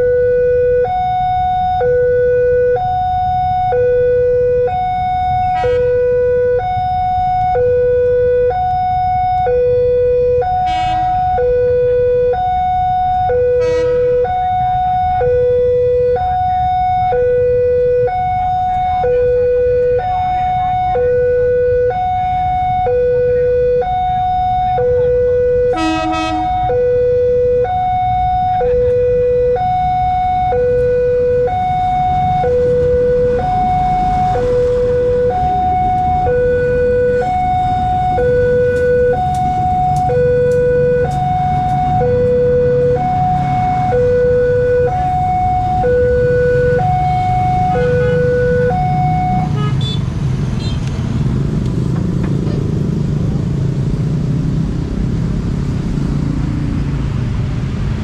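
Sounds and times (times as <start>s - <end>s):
two-tone crossing siren: 0.0s - 51.5s
short horn toot: 13.6s - 14.1s.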